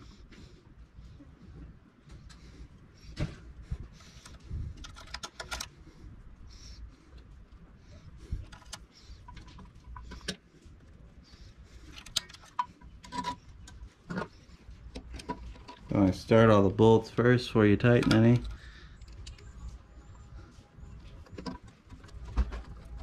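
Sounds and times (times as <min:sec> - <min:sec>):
light clicks and metal taps: 0:04.0 - 0:05.7, 0:08.4 - 0:16.0, 0:17.8 - 0:19.8.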